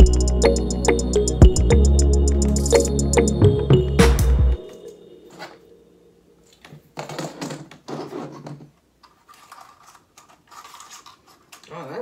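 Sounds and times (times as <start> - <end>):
plastic parts clicking and rustling: 6.5 - 12.0.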